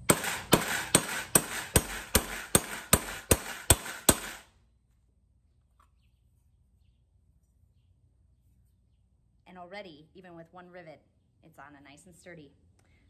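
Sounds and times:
hammer striking metal: 0.0 - 4.4.

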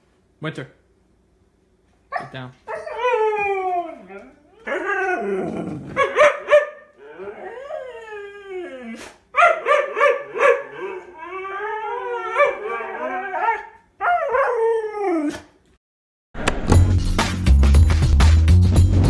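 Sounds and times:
husky howling: 2.7 - 15.5
dog yips and barks: 6.0 - 6.8, 9.4 - 10.9.

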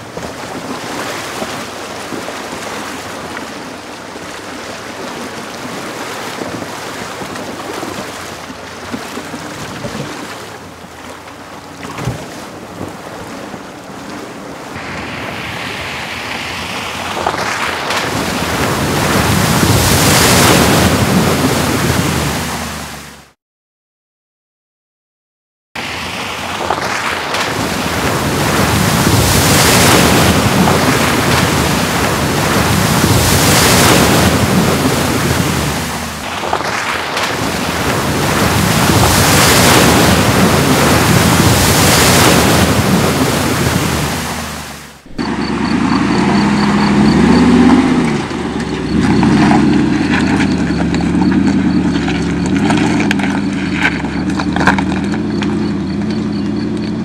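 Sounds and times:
engine crawling over rocks: 0.0 - 14.4, 27.9 - 57.0
water splashing: 0.0 - 23.4, 25.8 - 57.0
suv engine running: 25.8 - 57.0.

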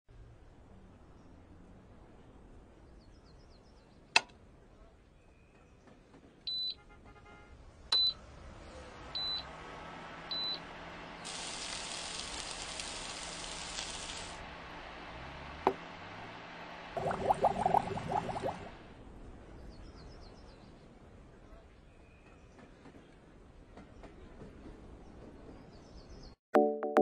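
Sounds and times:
steady hiss: 11.2 - 14.9.

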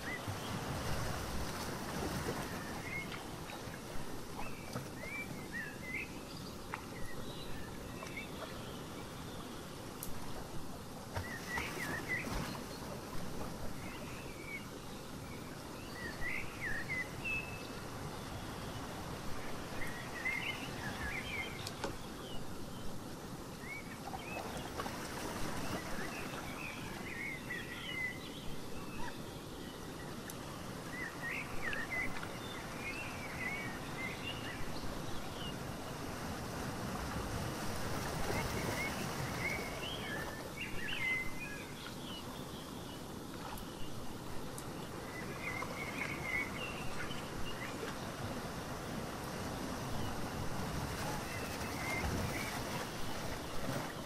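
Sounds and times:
ocean waves washing in: 30.5 - 41.9, 43.0 - 54.0
birds chirping: 38.2 - 49.0.

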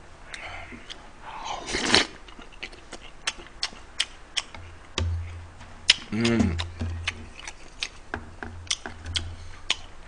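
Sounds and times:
loud mouthful of food: 1.2 - 2.2, 5.9 - 6.8
chewing with mouth clicks: 1.7 - 8.0, 8.7 - 9.9.

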